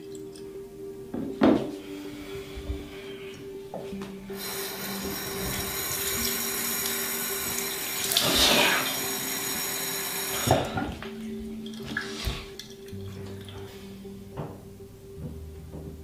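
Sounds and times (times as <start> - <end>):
sink faucet running: 4.3 - 13.7
water splashing on face: 4.4 - 13.6.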